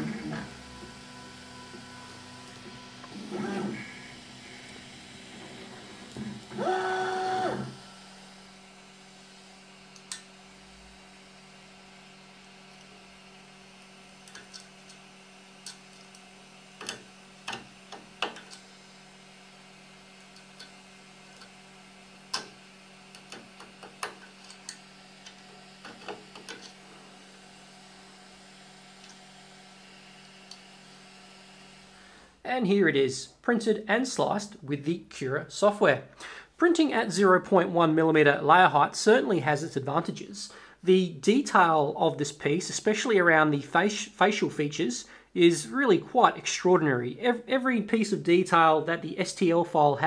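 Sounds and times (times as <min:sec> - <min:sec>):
stepper motors whining: 0:00.0 - 0:32.0
printer low hum: 0:00.0 - 0:32.4.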